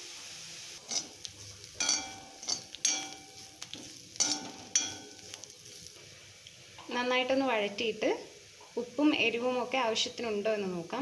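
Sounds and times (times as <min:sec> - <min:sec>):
faint sizzle: 0:00.0 - 0:11.0
metal spatula scraping frying pan: 0:00.8 - 0:06.0.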